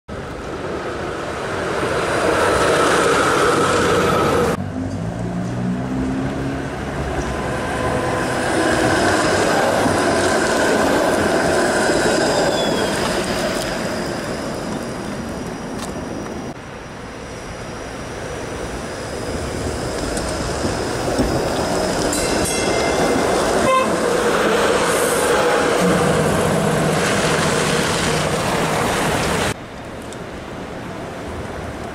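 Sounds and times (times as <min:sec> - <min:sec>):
streetcar rumble and hum: 0:00.1 - 0:31.9
streetcar bell ringing: 0:21.6 - 0:24.6.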